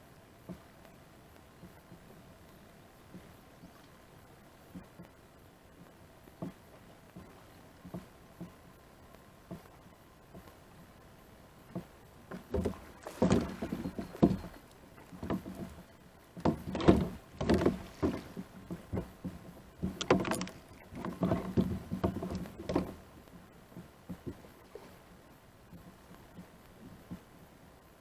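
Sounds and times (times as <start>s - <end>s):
water splashing: 0.4s - 27.4s.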